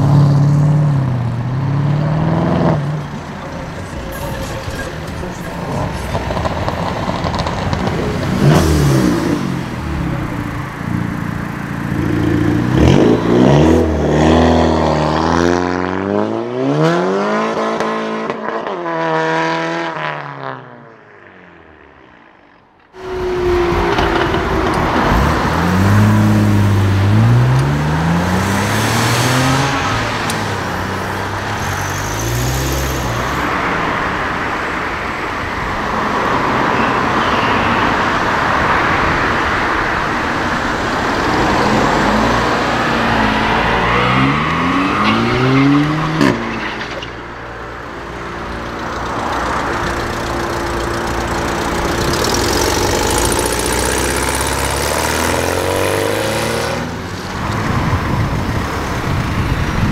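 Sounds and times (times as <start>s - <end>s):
car engine accelerating hard: 0.0s - 19.9s, 23.0s - 34.4s, 48.4s - 59.9s
car revving and accelerating: 0.0s - 20.7s, 23.0s - 47.1s, 47.8s - 59.9s
traffic noise: 0.0s - 59.9s.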